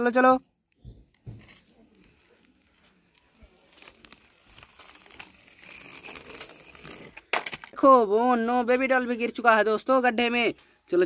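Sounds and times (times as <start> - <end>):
toy wheels crunching over sand: 1.1 - 7.8.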